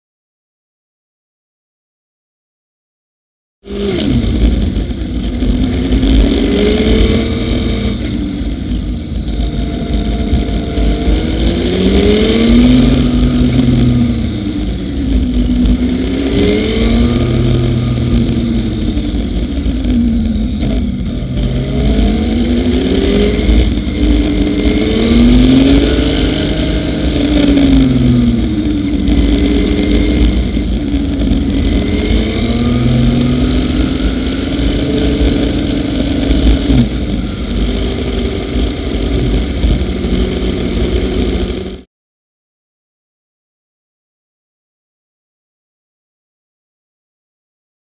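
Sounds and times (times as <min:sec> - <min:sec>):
motorcycle engine revving: 0:03.6 - 0:41.9
wind rumble on microphone: 0:03.7 - 0:41.8.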